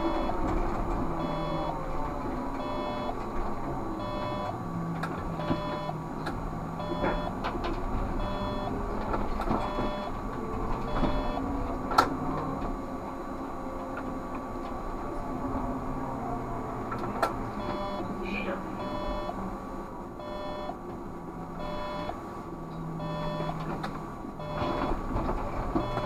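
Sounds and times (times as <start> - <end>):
electric drive hum: 0.0 - 13.6, 17.4 - 20.9, 21.5 - 22.4, 23.0 - 26.0
short electronic beep: 1.2 - 1.8, 2.6 - 3.2, 4.0 - 4.5, 5.4 - 6.0, 6.8 - 7.4, 8.2 - 8.8, 9.6 - 10.2, 10.9 - 11.4, 17.6 - 18.1, 18.8 - 19.4, 20.2 - 20.8, 21.6 - 22.1, 23.0 - 23.6, 24.4 - 25.0, 25.8 - 26.0.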